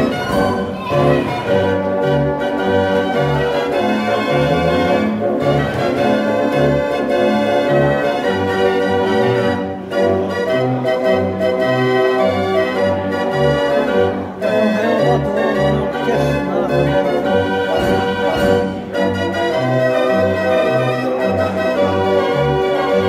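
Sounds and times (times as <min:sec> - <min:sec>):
street organ playing a tune: 0:00.0 - 0:23.0.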